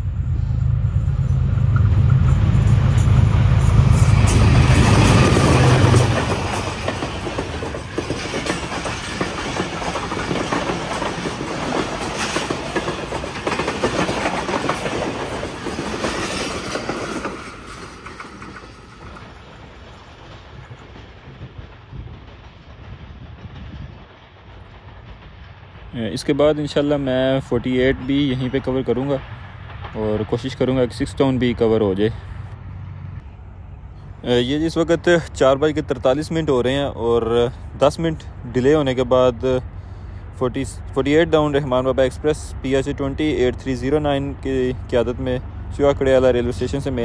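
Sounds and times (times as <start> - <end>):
train wheels clattering over rail joints: 0.0 - 30.0
locomotive engine rumble: 0.0 - 47.0.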